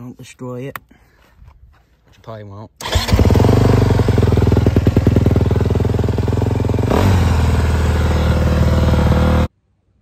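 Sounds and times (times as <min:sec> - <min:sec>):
motorcycle engine idling: 0:03.0 - 0:09.5.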